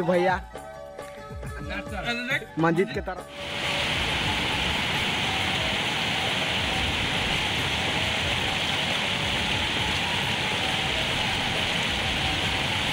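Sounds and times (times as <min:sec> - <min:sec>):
water rushing over weir: 0:03.3 - 0:12.9.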